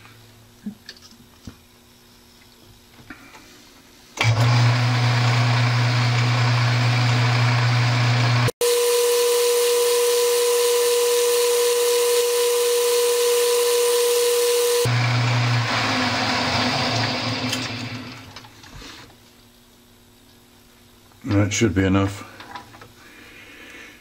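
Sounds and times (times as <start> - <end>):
metal lathe running with high whine: 6.5 - 15.5.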